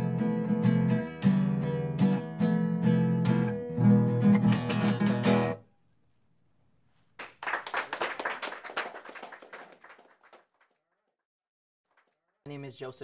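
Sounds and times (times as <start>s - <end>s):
acoustic guitar strumming: 0.0s - 5.6s
hand clapping: 7.2s - 10.8s, 11.9s - 12.2s.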